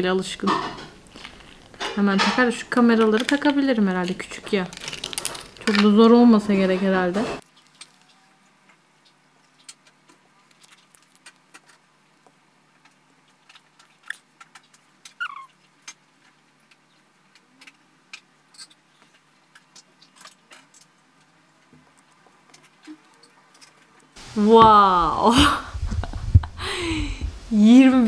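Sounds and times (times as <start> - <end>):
hands handling phone and packets: 1.1 - 1.9, 2.8 - 6.1.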